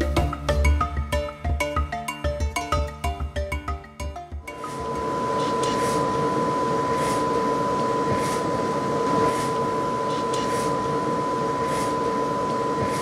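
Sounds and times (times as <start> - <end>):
high whine: 4.4 - 13.0
printer mechanical hum: 4.6 - 13.0.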